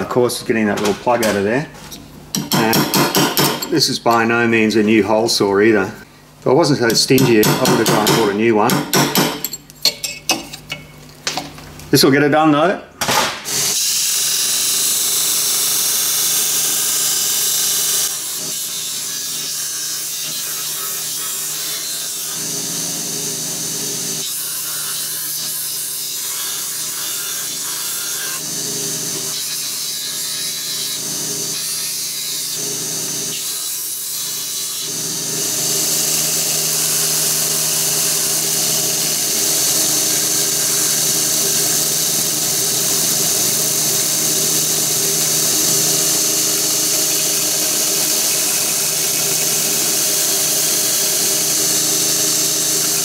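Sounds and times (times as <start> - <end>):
belt sander grinding: 35.3 - 53.0.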